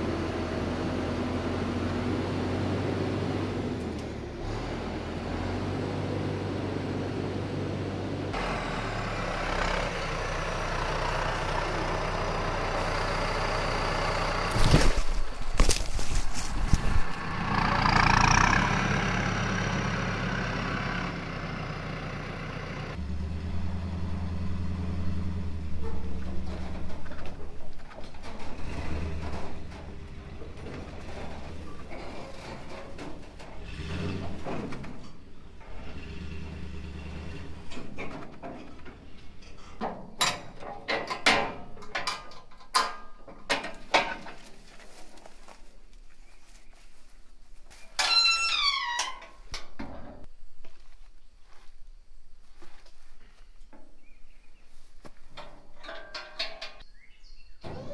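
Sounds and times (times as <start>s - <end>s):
vehicle engine idling: 6.4s - 37.7s
deeper engine note: 16.7s - 27.1s
metal trailer bangs and scrapes: 25.4s - 42.1s.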